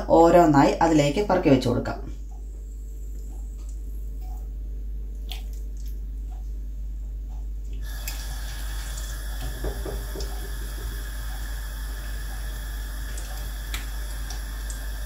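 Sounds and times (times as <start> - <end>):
chicken sizzling in hot oil: 7.8 - 15.0.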